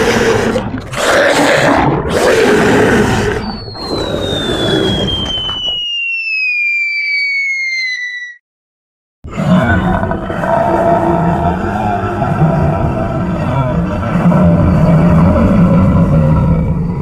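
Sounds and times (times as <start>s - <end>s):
loud roars: 0.0s - 5.1s, 9.3s - 17.0s
whistle falling in pitch: 3.4s - 8.4s.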